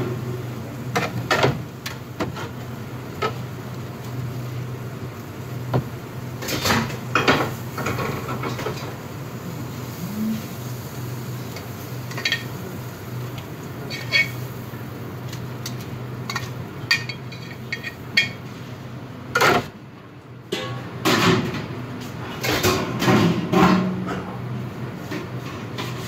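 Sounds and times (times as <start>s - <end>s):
pan and utensils clattering: 6.4s - 9.0s, 11.4s - 12.6s, 13.8s - 14.5s, 15.3s - 18.4s, 20.5s - 24.4s.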